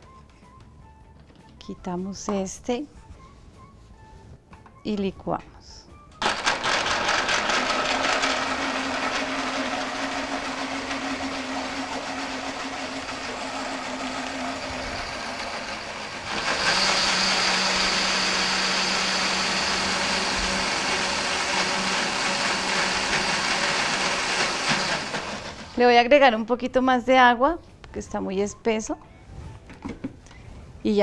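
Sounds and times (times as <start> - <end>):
blender motor running: 6.2 - 25.8.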